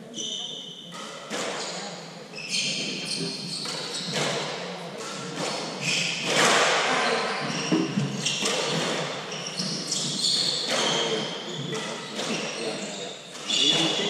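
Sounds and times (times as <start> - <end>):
shoes squeaking on court floor: 0.0 - 14.0
squash ball being struck: 3.6 - 12.5.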